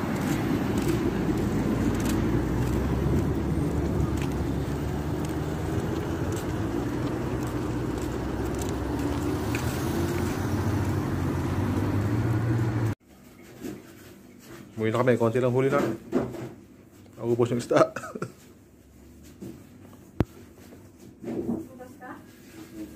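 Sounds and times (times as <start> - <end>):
cars driving past: 0.0 - 13.0.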